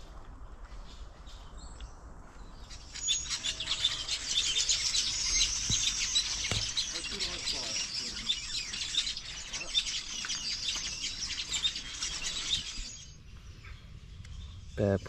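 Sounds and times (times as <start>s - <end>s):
small birds chirping: 0.7s - 15.0s.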